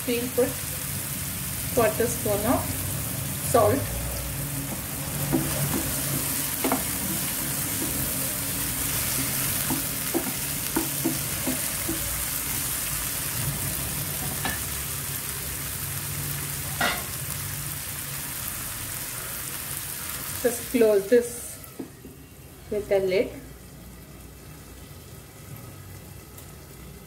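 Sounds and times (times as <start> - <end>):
vegetables sizzling in hot oil: 0.0 - 27.0
spatula tapping and scraping pan: 4.7 - 12.2.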